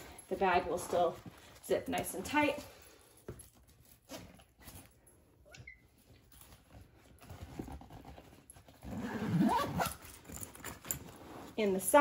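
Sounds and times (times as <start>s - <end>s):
fabric bag rustling: 0.0s - 2.8s, 6.3s - 12.0s.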